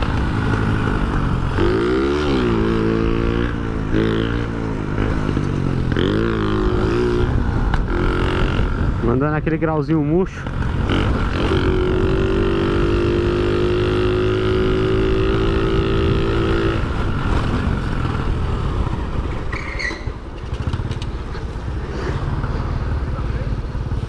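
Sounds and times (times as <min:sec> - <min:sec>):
wind and road rumble: 0:00.0 - 0:24.0
brief high squeak: 0:19.5 - 0:20.2.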